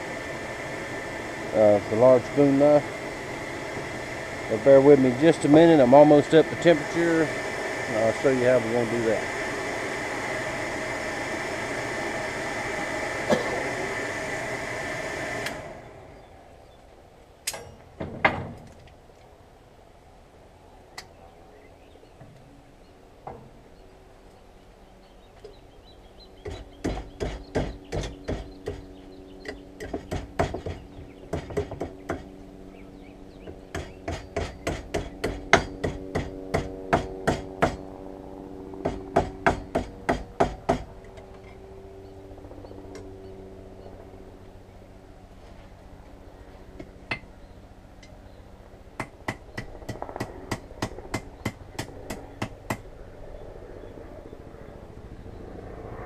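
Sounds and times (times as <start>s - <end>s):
forge blower running: 0.0s - 16.7s.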